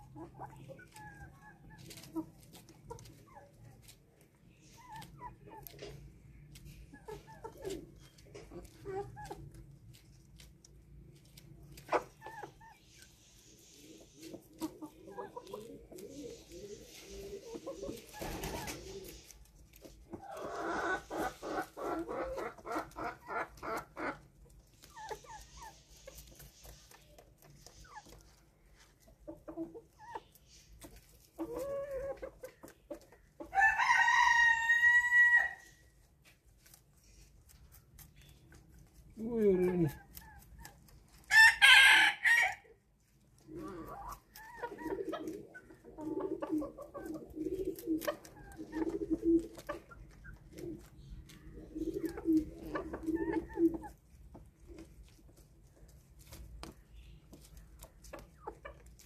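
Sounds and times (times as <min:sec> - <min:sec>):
chickens clucking: 0:00.0 - 0:59.0
rooster crowing: 0:33.5 - 0:35.6.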